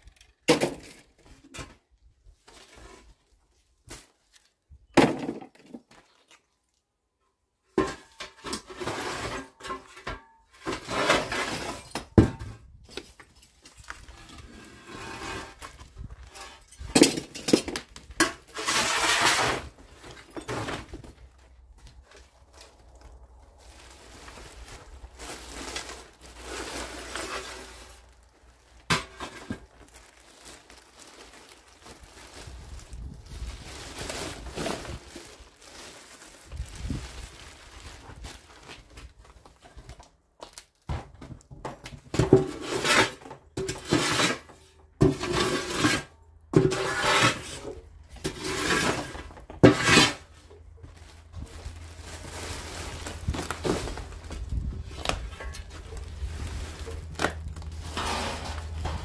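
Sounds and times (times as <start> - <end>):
debris and glass scraping: 7.8 - 12.1, 13.2 - 21.1, 42.3 - 50.4, 51.7 - 59.0
loud scraping clattering strokes: 18.2 - 19.8, 42.5 - 50.4, 57.7 - 59.0.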